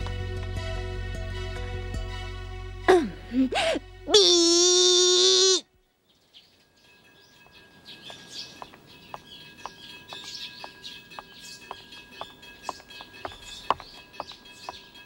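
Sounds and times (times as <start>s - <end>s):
quiet street background: 0.0s - 15.0s
girl taunting: 2.9s - 5.6s
birds chirping: 3.4s - 15.0s
light footsteps: 7.4s - 15.0s.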